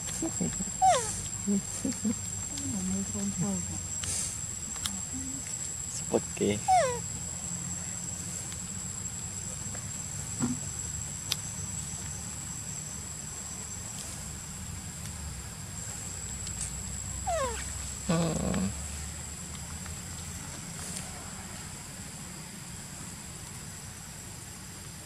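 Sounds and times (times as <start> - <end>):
macaque call: 0.1 - 2.3, 6.5 - 7.0, 17.2 - 18.8
macaque squealing: 0.7 - 1.2, 6.6 - 7.0, 17.3 - 18.7.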